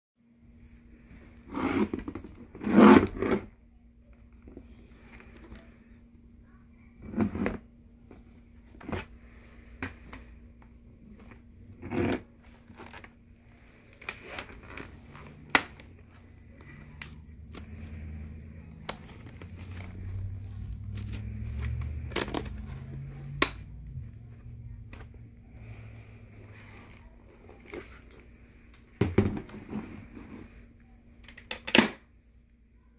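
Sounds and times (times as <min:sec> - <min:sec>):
faint steady hum: 0:00.2 - 0:32.9
helmet rubbing and scraping: 0:01.0 - 0:03.5, 0:11.1 - 0:13.1, 0:13.8 - 0:23.3.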